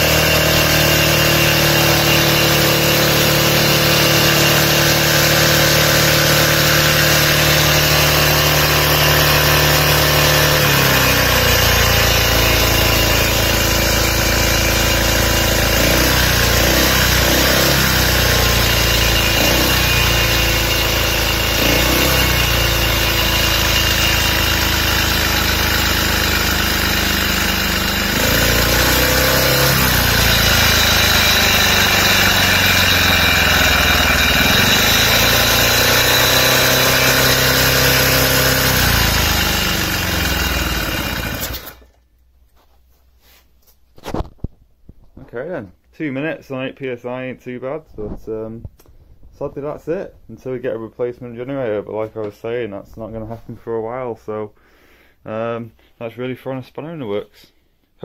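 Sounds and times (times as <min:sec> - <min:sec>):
small engine running: 0:00.0 - 0:41.9.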